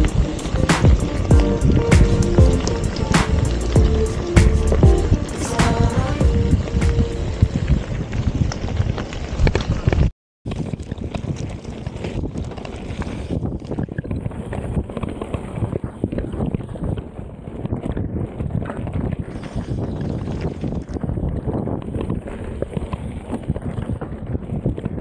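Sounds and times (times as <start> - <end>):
wind buffeting microphone: 0.0 - 25.0
mountain bike rattling on trail: 7.3 - 25.0.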